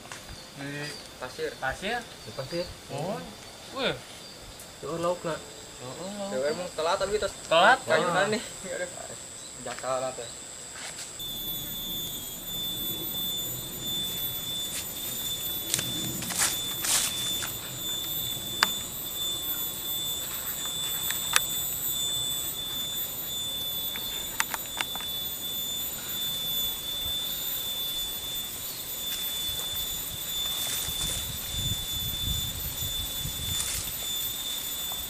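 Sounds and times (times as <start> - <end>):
high-pitched insect drone: 0.0 - 35.0
outdoor hiss: 0.0 - 35.0
sharp clicks: 11.2 - 25.4.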